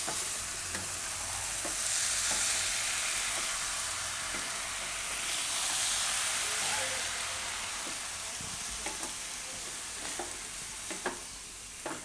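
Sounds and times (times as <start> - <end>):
spatula tapping and scraping pan: 0.0 - 1.0, 1.6 - 2.5, 8.8 - 9.2, 10.0 - 12.0
food sizzling in a wok: 0.0 - 12.0.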